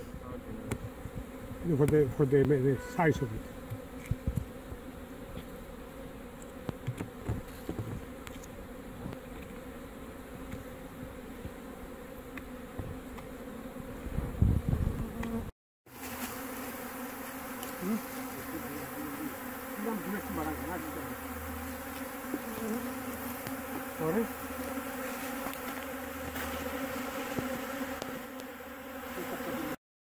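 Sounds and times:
honey bees buzzing: 0:00.0 - 0:29.8
clicks and knocks of hive frames: 0:06.5 - 0:09.7, 0:21.9 - 0:23.9, 0:24.6 - 0:28.6.

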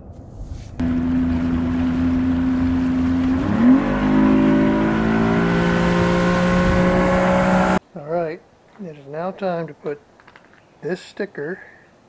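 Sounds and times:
motorboat engine revving: 0:00.8 - 0:07.8.

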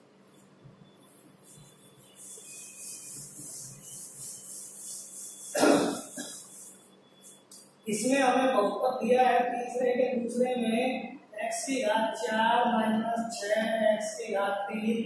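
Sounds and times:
cloth wiping chalkboard: 0:01.0 - 0:06.8
person coughing: 0:05.6 - 0:06.5.

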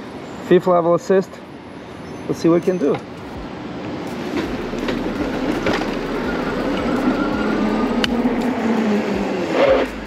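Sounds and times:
wind and road noise: 0:00.0 - 0:10.0.

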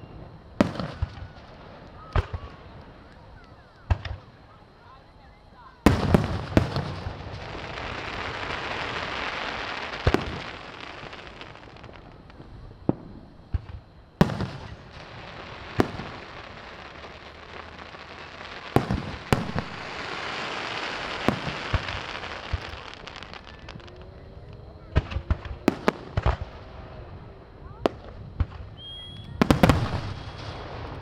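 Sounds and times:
firework crackling fizz: 0:05.8 - 0:27.1, 0:27.8 - 0:31.0
firework shells bursting: 0:05.9 - 0:24.0.

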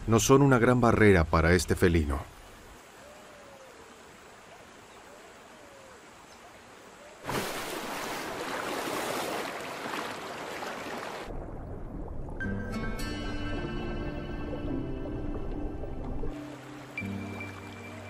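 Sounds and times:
faint animal calls: 0:02.9 - 0:04.2, 0:04.8 - 0:07.2
churning splashing water: 0:07.2 - 0:12.5
loud splash into river: 0:07.2 - 0:12.5.

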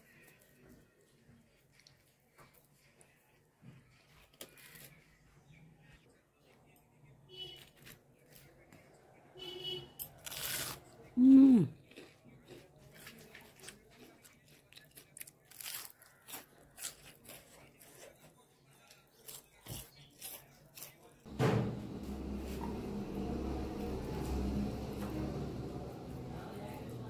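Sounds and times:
food crunching while chewed: 0:01.4 - 0:05.3, 0:10.0 - 0:21.3.

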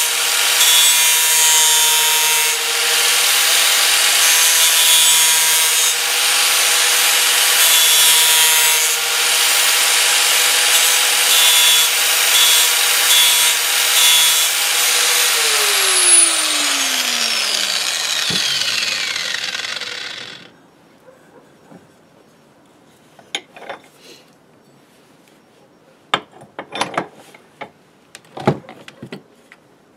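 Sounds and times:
angle grinder cutting steel: 0:00.0 - 0:20.5
grinder disc spinning down: 0:12.4 - 0:20.5.

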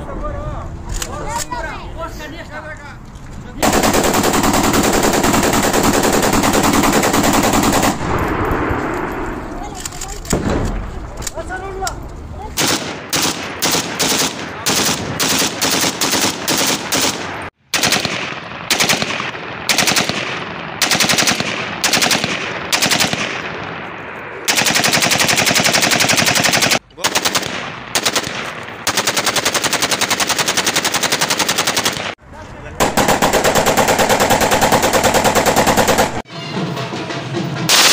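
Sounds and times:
automatic rifle fire: 0:03.6 - 0:09.2, 0:10.2 - 0:10.9, 0:12.6 - 0:23.6, 0:24.5 - 0:32.2, 0:32.8 - 0:36.2.

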